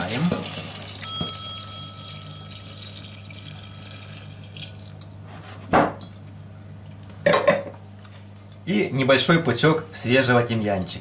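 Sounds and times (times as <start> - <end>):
wine pouring into saucepan: 0.0 - 5.0
clear ringing tone: 1.0 - 4.2.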